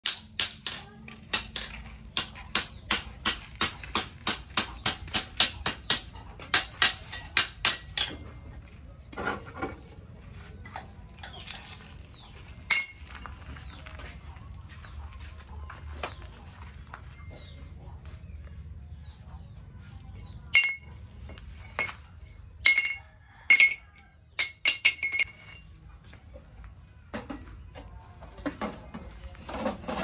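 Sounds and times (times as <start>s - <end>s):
hammer striking steel on anvil: 0.0s - 8.2s, 20.2s - 21.0s, 22.7s - 23.8s.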